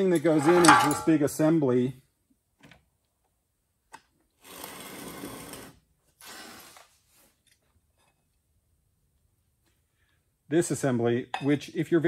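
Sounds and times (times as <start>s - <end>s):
metallic rattling: 0.1s - 1.4s.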